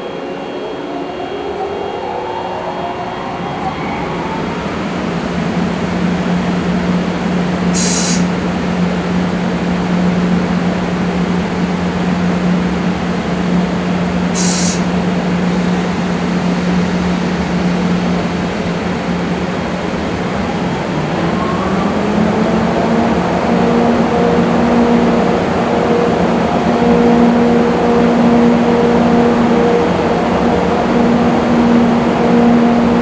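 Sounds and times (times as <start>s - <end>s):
low hum: 0.0s - 7.7s
rising whine: 0.0s - 7.7s, 19.9s - 33.0s
short high hisses: 7.8s - 8.3s, 14.4s - 14.9s.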